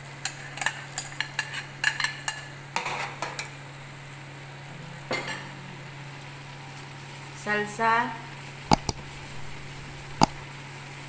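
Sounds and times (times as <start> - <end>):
low hum: 8.7 - 10.5.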